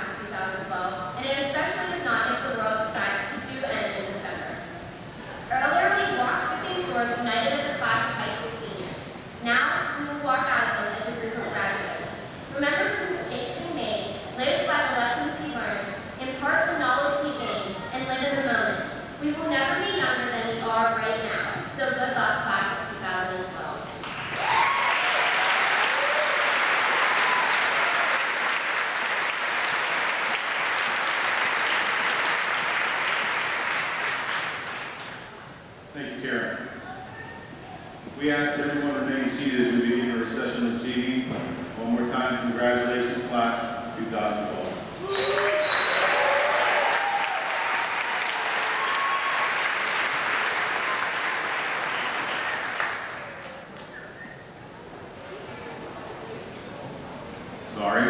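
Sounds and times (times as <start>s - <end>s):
large crowd applauding: 24.0s - 35.3s, 45.0s - 53.9s.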